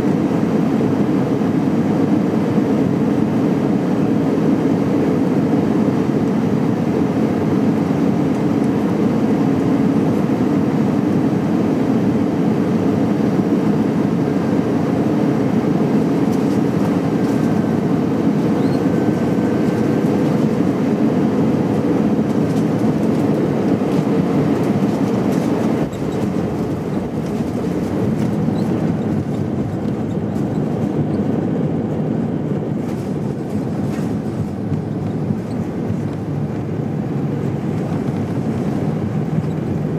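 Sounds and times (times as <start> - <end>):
aircraft cabin engine rush: 0.0 - 39.9.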